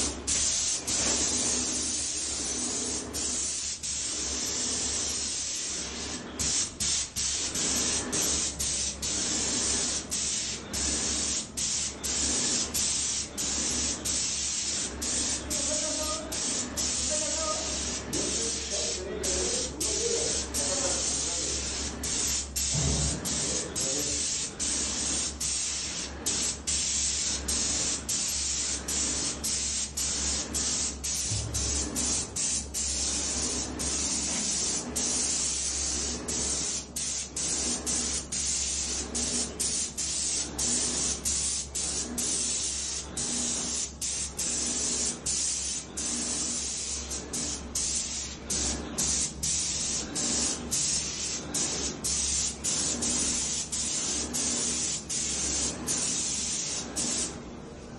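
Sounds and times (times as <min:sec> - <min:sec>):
paint sprayer hissing: 0:00.0 - 0:57.4.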